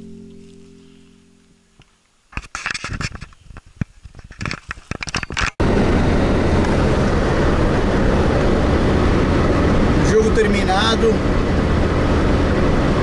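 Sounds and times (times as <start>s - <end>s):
car road and engine noise: 0.0s - 13.0s
irregular clicks and rustling: 1.8s - 5.6s.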